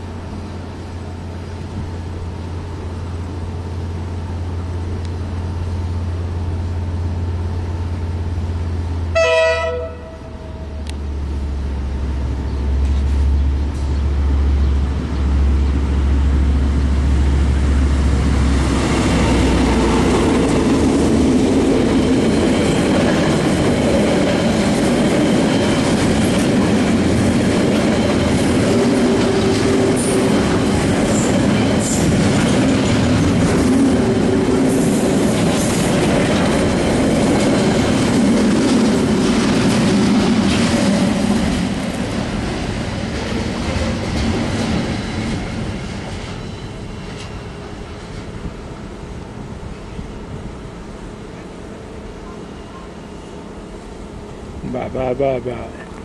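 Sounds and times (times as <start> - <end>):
locomotive engine hum: 0.0 - 56.0
train horn blast: 9.1 - 10.9
train wheels clattering: 18.2 - 48.4.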